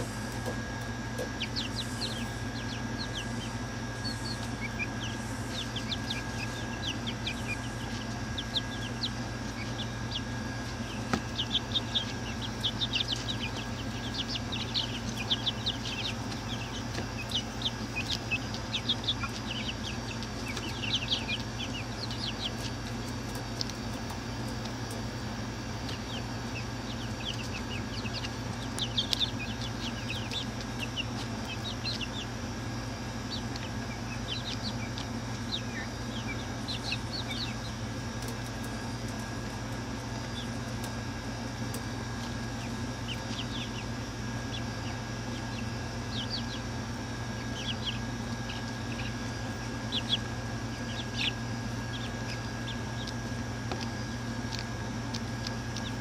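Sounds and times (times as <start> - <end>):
chicks peeping: 0.0 - 56.0
steady low hum: 0.0 - 56.0.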